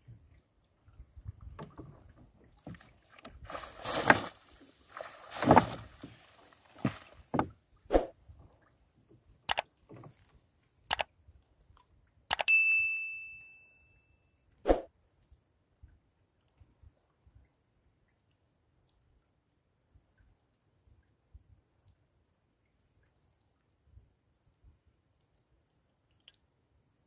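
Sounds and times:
water splashing: 0:01.7 - 0:08.2
clicks and bell ding effect: 0:12.3 - 0:14.3.

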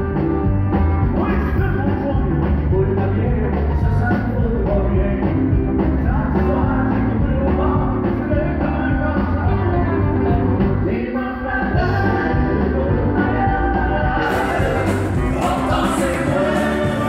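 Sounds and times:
drums: 0:00.0 - 0:17.0
strummed acoustic guitars: 0:11.8 - 0:17.0.

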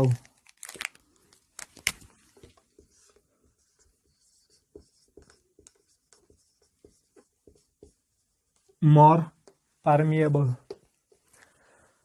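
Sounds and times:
marker writing on whiteboard: 0:02.2 - 0:11.5.

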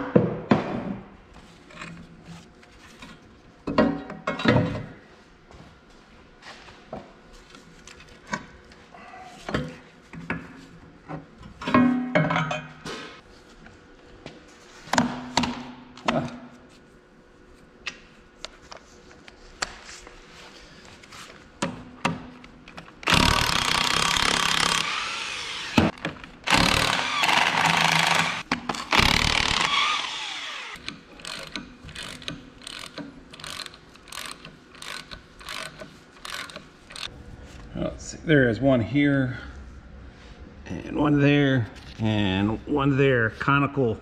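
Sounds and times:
cordless power tool spinning nuts: 0:23.0 - 0:37.1.

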